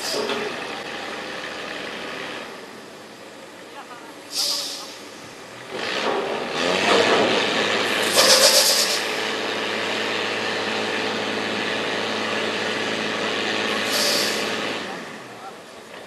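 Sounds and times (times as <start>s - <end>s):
truck diesel engine running: 0.0s - 16.0s
burst of hiss: 4.3s - 5.2s, 8.0s - 9.2s, 13.8s - 14.6s.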